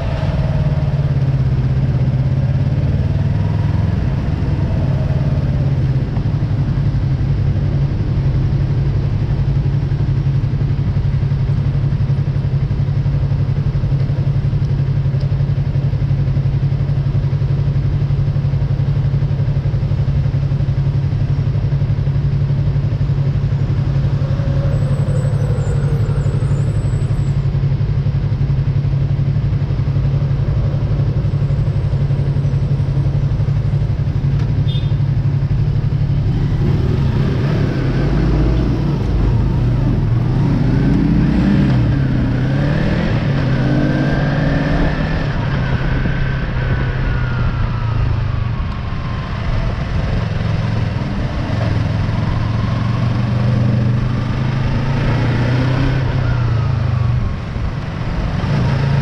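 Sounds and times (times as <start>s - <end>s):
motorcycle engine idling: 0.0s - 41.2s
vehicles passing by: 0.0s - 59.0s.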